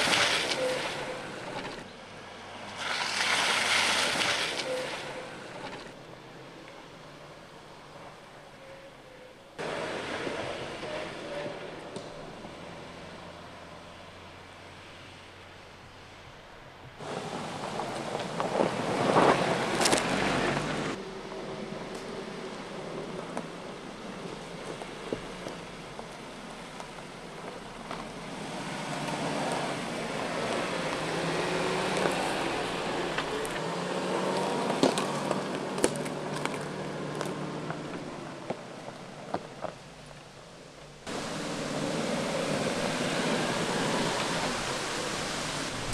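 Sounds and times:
car engine at low revs: 0:09.5 - 0:45.9
twigs crackling under tyres: 0:17.0 - 0:45.9
twigs snapping: 0:34.4 - 0:37.8.

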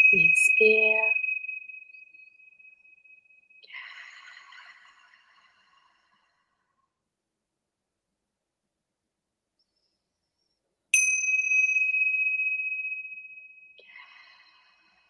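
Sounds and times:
small bell ringing: 0:00.0 - 0:02.2, 0:11.0 - 0:13.8.

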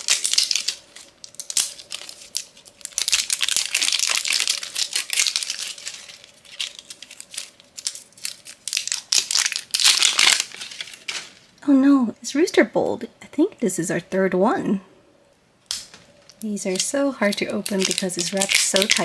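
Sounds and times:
plastic wrapper crinkling: 0:00.0 - 0:11.6, 0:15.9 - 0:19.0.

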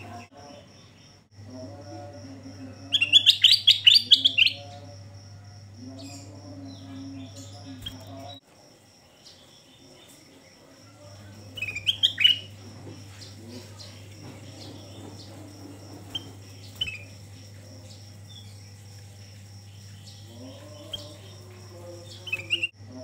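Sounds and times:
steady low hum: 0:00.0 - 0:23.0
bulbul chirping: 0:02.8 - 0:04.9, 0:11.4 - 0:22.8.

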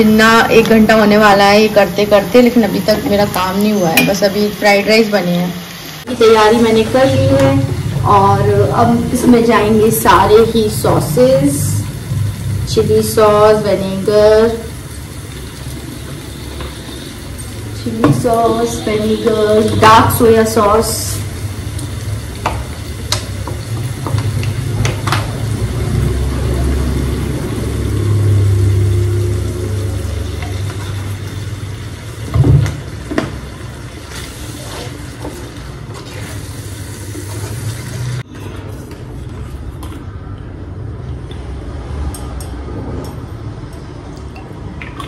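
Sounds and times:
stir-frying in a pan: 0:00.0 - 0:40.0.

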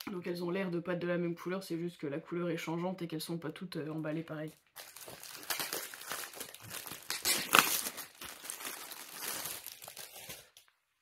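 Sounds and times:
plastic wrapping crinkling: 0:04.4 - 0:10.8.

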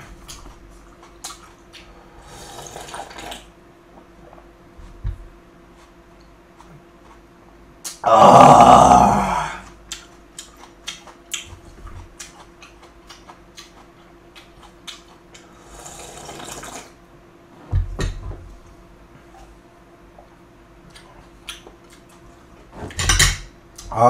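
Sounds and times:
slurping broth: 0:02.2 - 0:03.4, 0:15.6 - 0:16.9.

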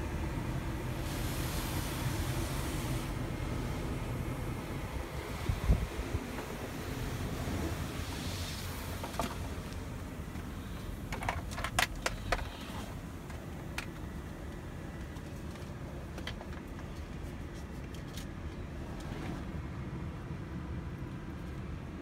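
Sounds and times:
car wash equipment rumbling: 0:00.0 - 0:22.0
water on car body: 0:00.1 - 0:13.1.

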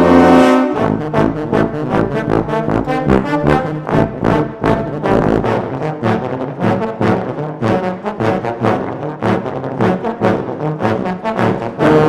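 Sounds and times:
euphoniums and tubas playing: 0:00.0 - 0:12.0.

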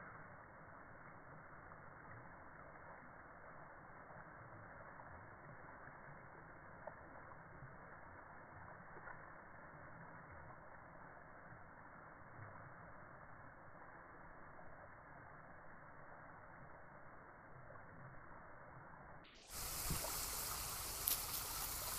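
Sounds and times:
water running down gutter: 0:19.5 - 0:21.9.

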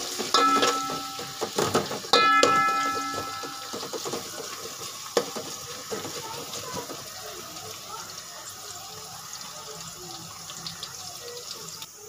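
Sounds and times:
onions frying in oil: 0:00.0 - 0:12.0
metal spoon knocking pot rim: 0:00.3 - 0:04.2.

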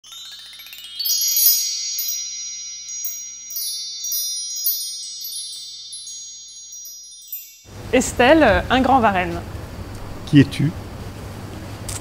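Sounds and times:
high metal wind chimes ringing: 0:00.0 - 0:09.1.

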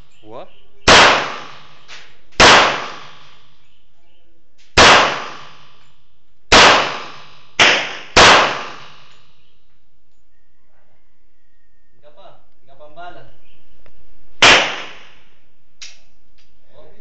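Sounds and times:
pistol shots with echo: 0:00.8 - 0:03.6, 0:04.8 - 0:05.8, 0:06.5 - 0:09.2, 0:14.4 - 0:15.3.

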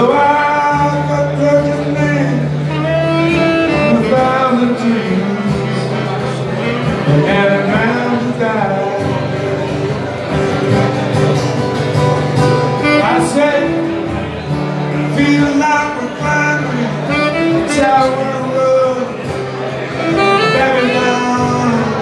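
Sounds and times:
acoustic guitar playing: 0:00.0 - 0:22.0
saxophone melody: 0:00.6 - 0:05.9, 0:12.3 - 0:22.0.

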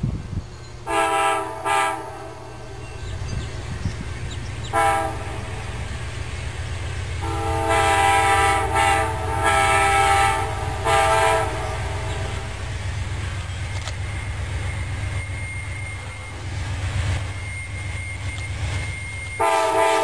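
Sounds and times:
low train rumble: 0:00.0 - 0:20.0
locomotive horn blasts: 0:00.9 - 0:02.5, 0:04.7 - 0:05.5, 0:07.2 - 0:12.6, 0:19.4 - 0:20.0.

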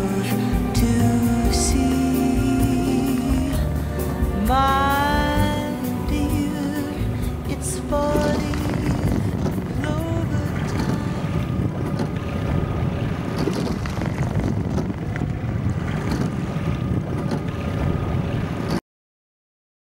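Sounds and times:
water noise from rowing boat: 0:07.2 - 0:18.8
wind buffeting microphone: 0:07.4 - 0:18.8.

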